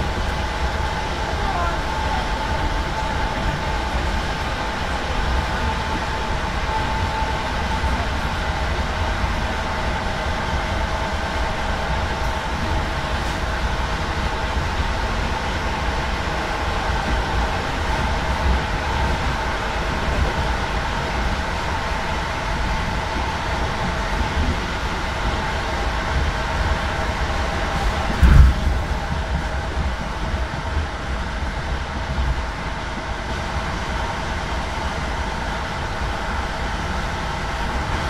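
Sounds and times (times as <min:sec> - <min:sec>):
train wheels rumbling on track: 0:00.0 - 0:38.0.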